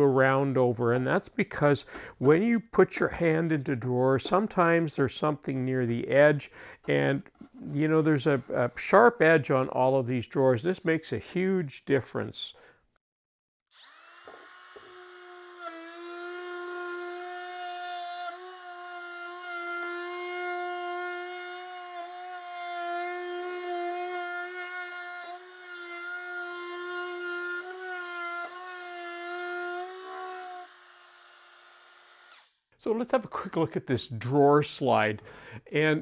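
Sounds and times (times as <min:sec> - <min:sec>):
trim router whining: 0:13.7 - 0:18.4, 0:29.8 - 0:32.5.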